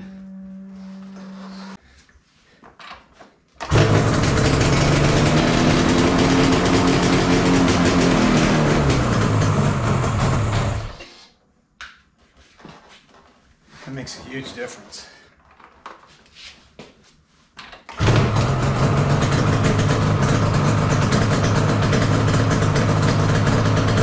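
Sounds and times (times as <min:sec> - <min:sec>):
two-stroke engine revving: 0:03.6 - 0:11.0, 0:18.0 - 0:24.0.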